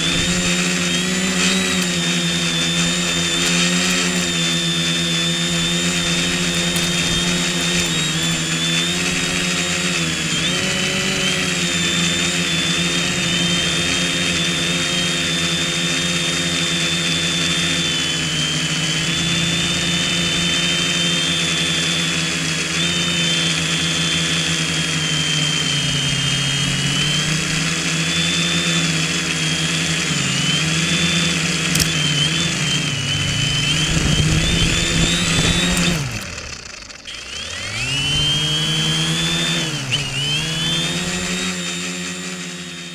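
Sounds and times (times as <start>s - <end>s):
drone motors whining: 0.0s - 42.9s.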